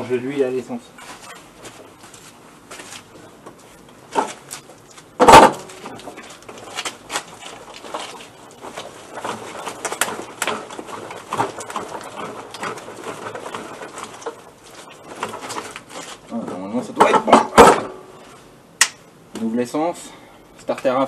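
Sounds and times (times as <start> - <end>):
moped frame knocking and rattling: 5.2 - 6.8, 7.4 - 18.0.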